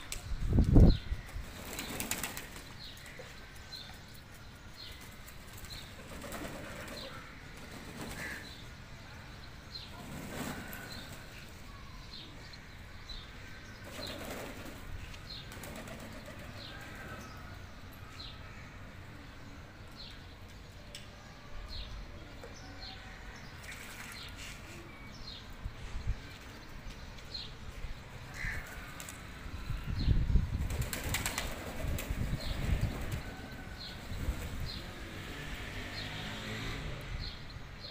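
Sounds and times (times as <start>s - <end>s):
pigeons flapping wings in water: 1.5s - 2.7s, 5.5s - 8.4s, 23.6s - 24.2s, 30.6s - 33.4s.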